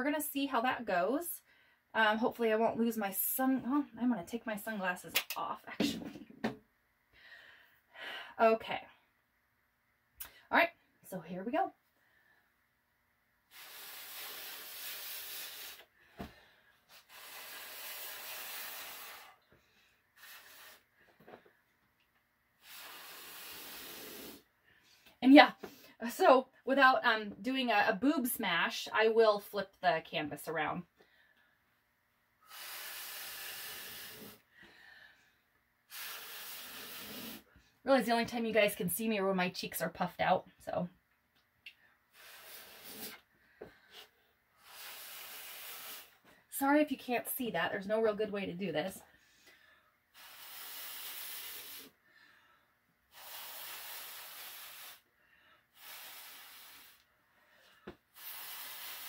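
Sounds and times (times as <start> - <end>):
hard mouth-blown breaths: 13.5 - 16.0, 16.9 - 19.5, 20.2 - 21.2, 22.6 - 24.5, 32.4 - 34.6, 35.9 - 37.6, 42.1 - 46.3, 49.5 - 52.4, 53.1 - 55.1, 55.7 - 59.0.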